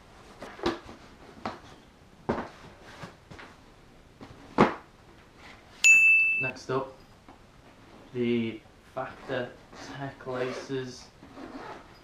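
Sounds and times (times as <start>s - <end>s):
cardboard boxes knocking and scuffing: 0.4s - 3.5s.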